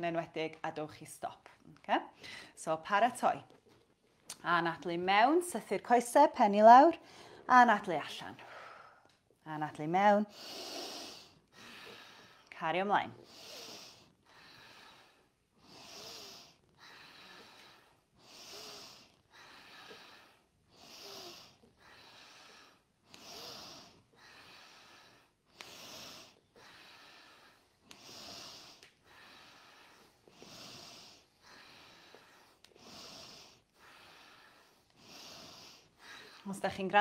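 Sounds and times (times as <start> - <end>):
people breathing deeply: 10.3 - 12.5, 13.2 - 36.5.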